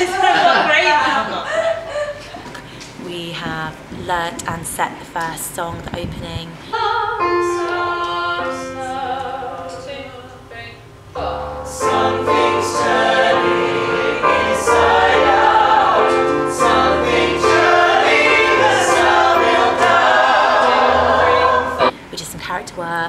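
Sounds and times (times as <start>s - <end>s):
group of voices singing in harmony: 11.2s - 21.9s.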